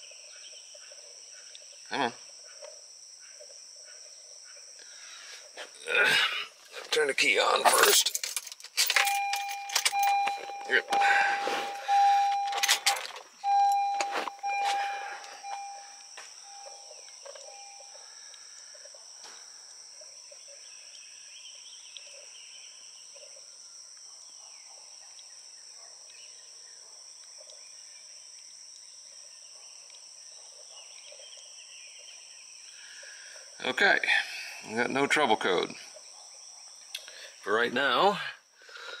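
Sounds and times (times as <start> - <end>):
birds calling faintly: 0.0 - 38.1
car warning chime: 8.9 - 18.0.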